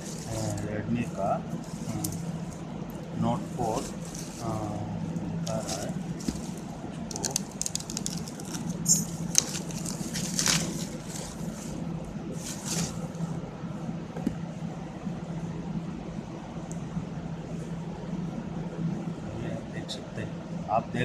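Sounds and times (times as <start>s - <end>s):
low hum: 0.0s - 21.0s
plastic wrapping crinkling and tearing: 3.6s - 4.7s, 5.5s - 11.8s.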